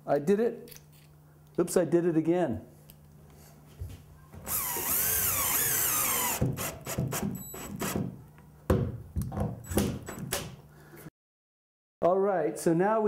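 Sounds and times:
cordless drill motor whining: 0:04.4 - 0:08.0.

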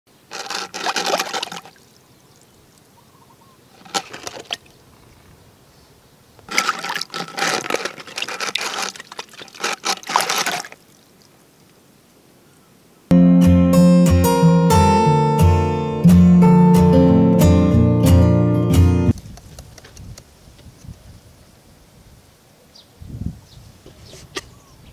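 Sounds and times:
fish thrashing in water: 0:00.3 - 0:01.9, 0:03.7 - 0:04.8, 0:06.5 - 0:11.1
water splashing: 0:00.3 - 0:02.9, 0:03.7 - 0:05.2, 0:06.4 - 0:11.7.

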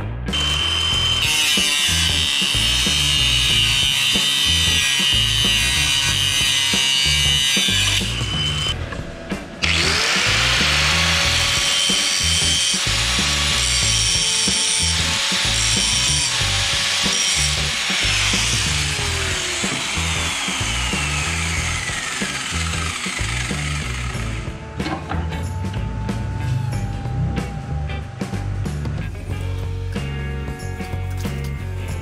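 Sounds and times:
grinder winding down whine: 0:00.3 - 0:08.8, 0:09.6 - 0:24.8
angle grinder cutting metal: 0:00.3 - 0:08.9, 0:09.5 - 0:24.6
background music with beat: 0:16.7 - 0:32.0.

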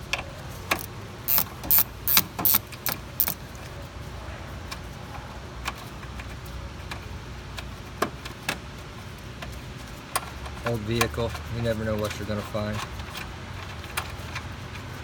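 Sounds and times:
ratchet clicking: 0:00.7 - 0:03.4.

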